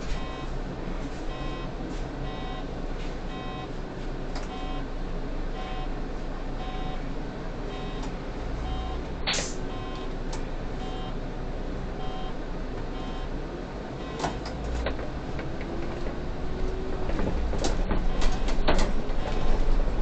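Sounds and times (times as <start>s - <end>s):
bus engine rumble: 0.0s - 20.0s
short electronic beeps: 0.2s - 0.5s, 1.3s - 1.7s, 3.3s - 3.7s, 4.5s - 4.9s, 7.7s - 8.0s, 9.7s - 10.1s, 10.8s - 11.2s, 12.0s - 12.4s, 13.0s - 13.3s.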